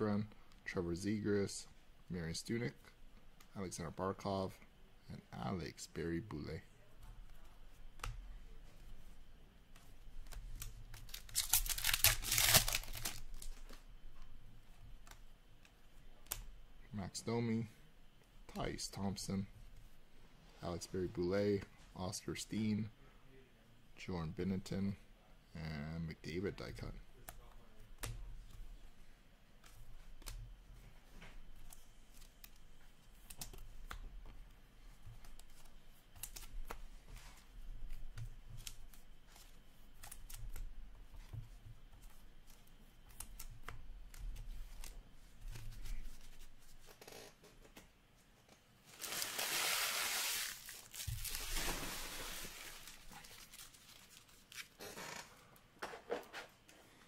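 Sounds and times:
wrapper tearing and crinkling: 11.1 - 13.6, 48.9 - 54.8.

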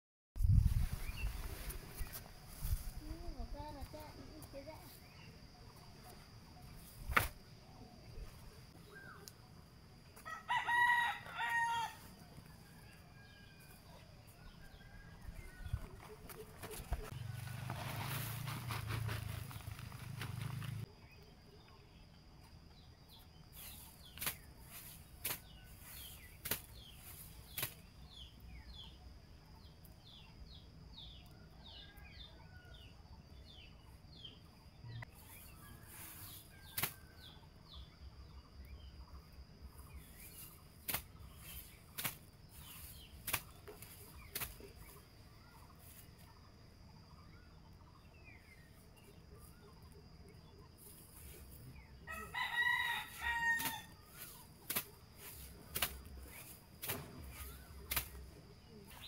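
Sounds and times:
sharp snaps of stems: 7.0 - 7.4, 23.6 - 28.0, 36.7 - 37.0, 40.2 - 45.0, 53.6 - 59.0
rustling of leafy stems: 15.4 - 20.9, 23.5 - 28.0, 39.9 - 46.3, 50.8 - 59.0
small birds chirping: 33.4 - 59.0.

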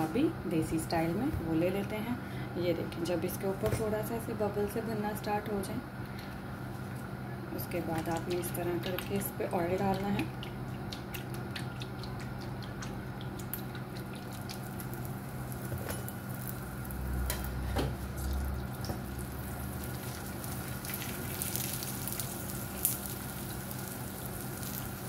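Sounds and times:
oil sizzling on a griddle: 14.3 - 25.0.

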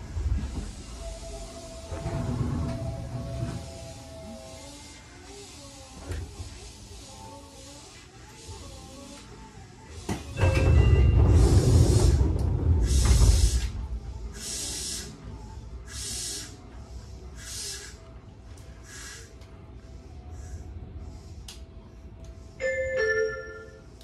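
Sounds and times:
train compressed air hissing: 0.3 - 2.0, 2.9 - 21.6.

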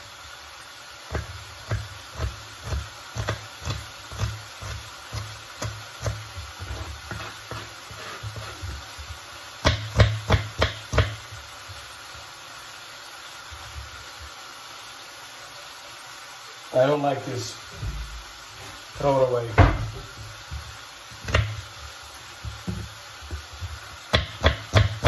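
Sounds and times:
knife chopping on plastic board: 1.1 - 8.6, 9.6 - 11.3, 21.2 - 21.6, 24.1 - 25.0.

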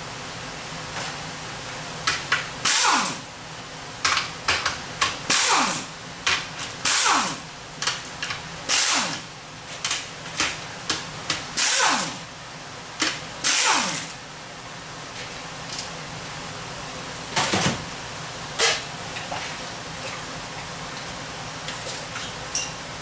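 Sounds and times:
pneumatic impact wrench: 2.6 - 3.3, 5.3 - 5.9, 6.8 - 7.5, 8.7 - 10.0, 11.6 - 12.3, 13.4 - 14.2.

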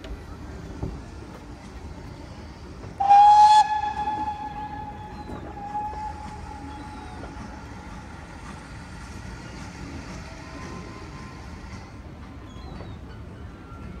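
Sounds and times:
steam locomotive whistle: 3.0 - 7.5.

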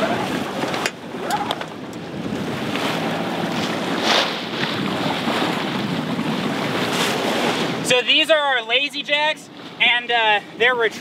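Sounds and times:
wind buffeting microphone: 0.0 - 7.9
water rushing past hull: 0.0 - 11.0
engine low hum: 0.1 - 6.5.

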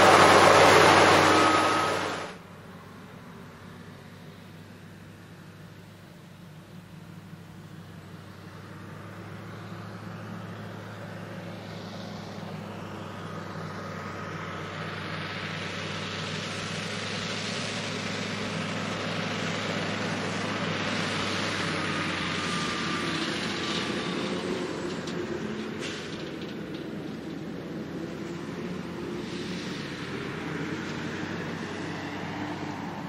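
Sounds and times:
tractor diesel engine under load: 0.0 - 33.0
hiss: 29.2 - 30.4.

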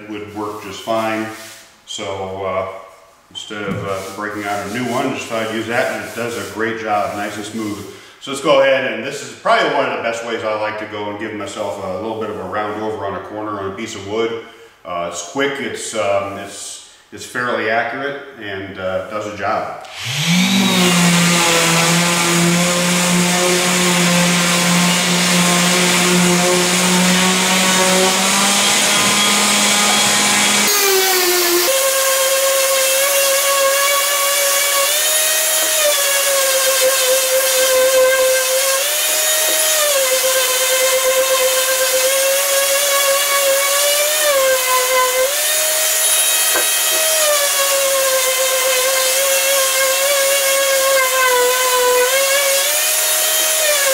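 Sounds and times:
orbital sander on wood: 3.7 - 7.9, 19.8 - 53.9.

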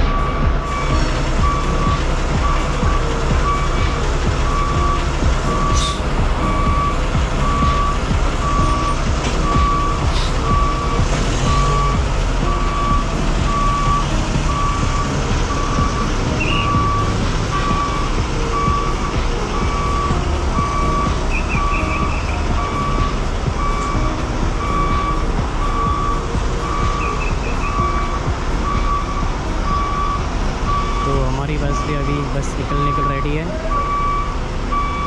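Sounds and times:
bus engines idling: 0.0 - 35.0
reverse warning beeper: 0.0 - 35.0.

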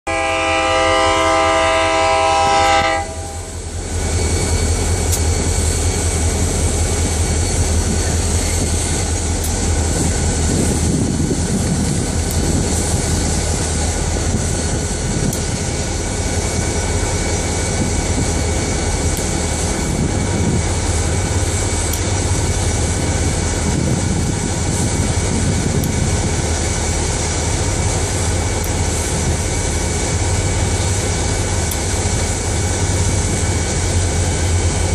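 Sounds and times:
locomotive air horn: 0.1 - 3.6
diesel locomotives running: 0.1 - 34.9.

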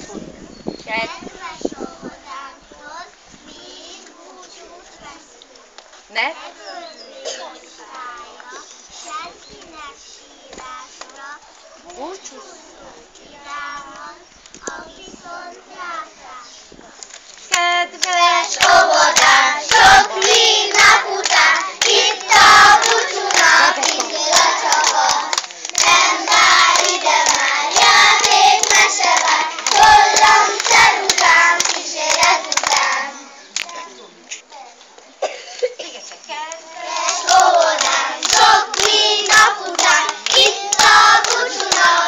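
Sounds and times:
children clapping: 17.0 - 33.8, 36.4 - 42.0
children singing: 18.0 - 33.2, 36.7 - 42.0.

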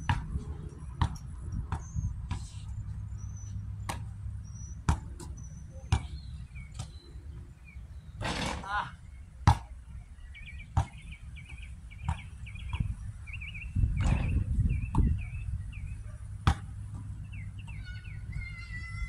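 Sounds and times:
basketball bouncing on hard court: 0.0 - 0.4, 1.0 - 2.4, 4.9 - 5.3, 16.4 - 17.1
bird chirping: 1.7 - 16.3, 17.2 - 19.0.

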